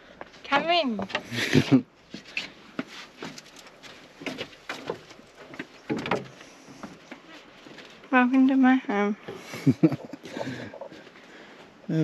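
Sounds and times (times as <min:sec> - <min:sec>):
footsteps on wooden boardwalk: 0:02.0 - 0:08.6.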